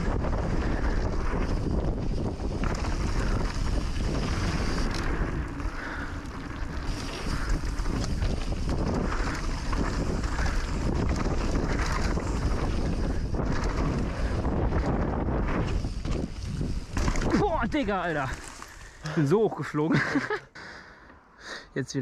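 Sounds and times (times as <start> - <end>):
wind buffeting microphone: 0.0 - 18.8
tyre noise on dirt: 0.0 - 19.3
bike rattling: 0.0 - 20.3.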